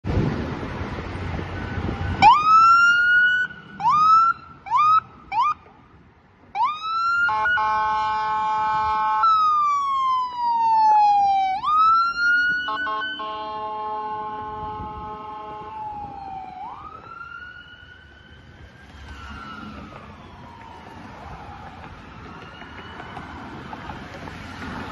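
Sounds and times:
ambulance siren wailing: 1.6 - 5.7, 6.5 - 24.9
long steady horn blast: 7.3 - 9.2, 12.6 - 15.8.

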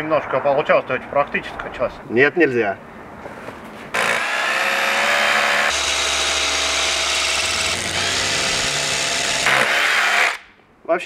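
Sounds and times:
rotary hammer drilling into concrete: 4.0 - 10.5.

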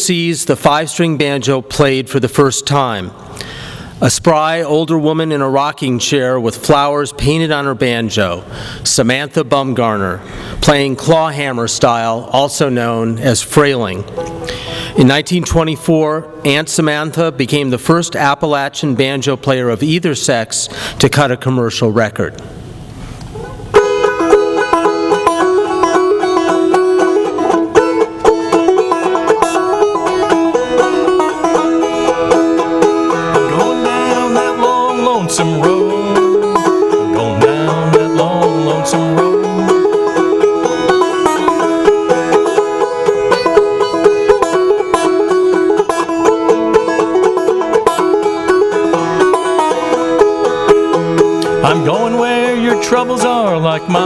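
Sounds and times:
banjo playing: 12.8 - 17.3, 23.4 - 54.0
low voice humming: 33.2 - 39.8.

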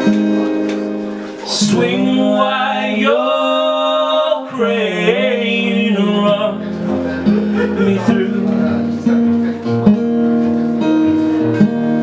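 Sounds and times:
men singing together: 1.5 - 6.7, 7.3 - 8.8.

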